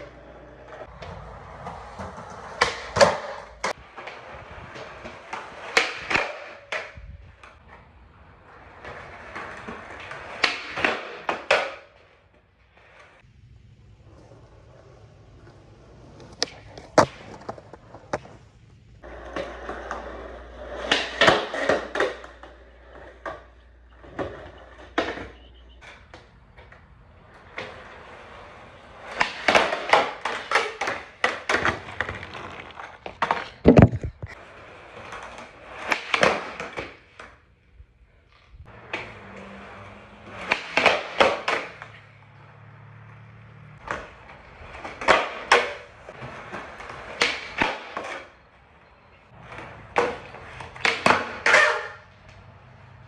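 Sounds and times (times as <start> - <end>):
skateboard deck clacking down: 0.0 - 12.4, 14.1 - 37.4, 38.7 - 42.2, 43.8 - 52.4
skateboard wheels rolling: 0.0 - 53.0
skateboard tail pops: 0.9 - 7.7, 16.1 - 18.5, 29.1 - 34.4, 35.0 - 37.4, 40.3 - 42.0, 43.8 - 48.4, 49.5 - 52.4.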